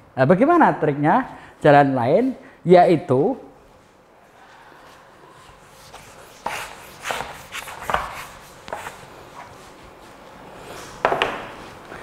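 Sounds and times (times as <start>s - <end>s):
eraser wiping whiteboard: 4.9s - 10.0s.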